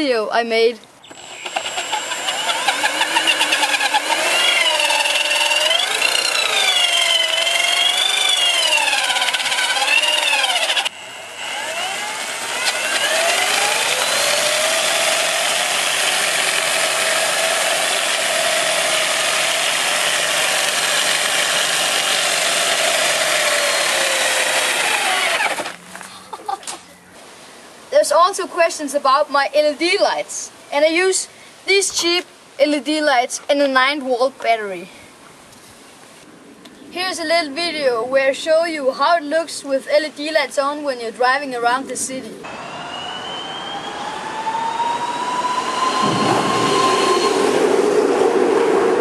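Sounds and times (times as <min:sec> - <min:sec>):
electric motor whining: 0:01.0 - 0:25.8, 0:42.4 - 0:47.9.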